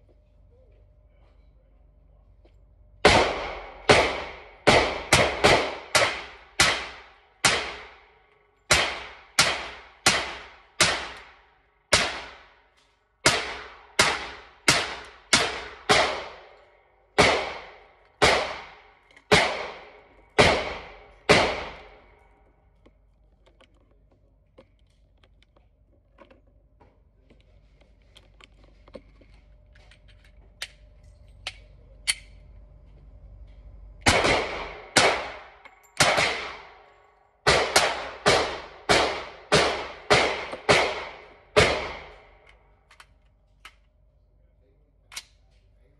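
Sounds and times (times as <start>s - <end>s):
pistol shots echoing indoors: 3.0s - 8.1s, 8.7s - 12.6s, 13.2s - 22.2s, 34.0s - 36.8s.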